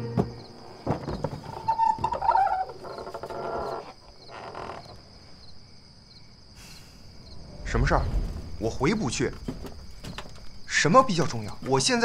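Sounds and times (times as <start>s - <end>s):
wooden door creaking open: 0.0s - 5.2s, 8.0s - 12.0s
crickets chirping: 0.0s - 12.0s.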